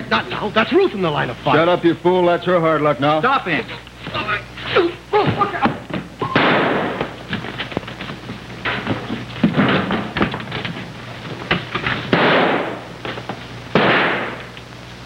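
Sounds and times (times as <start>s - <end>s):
knocks and thuds on wood: 5.2s - 10.8s
noisy crashes: 6.2s - 7.2s, 11.4s - 13.1s, 13.7s - 14.5s.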